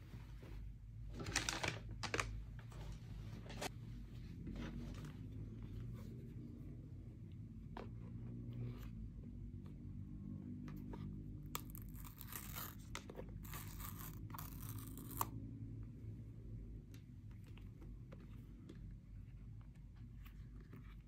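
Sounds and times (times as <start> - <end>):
packaging tearing: 11.6 - 15.3.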